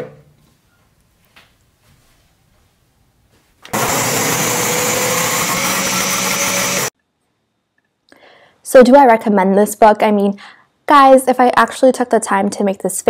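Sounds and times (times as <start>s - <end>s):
blender motor running: 3.7s - 6.9s.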